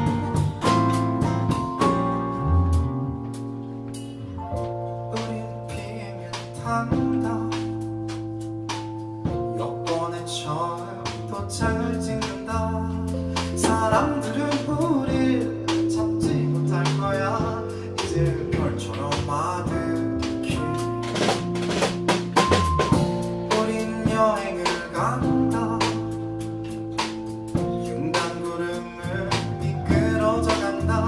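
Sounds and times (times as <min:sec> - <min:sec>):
live pop band playing: 0:00.0 - 0:31.0
man singing: 0:05.1 - 0:08.0, 0:09.4 - 0:21.0, 0:23.4 - 0:26.4, 0:27.6 - 0:31.0.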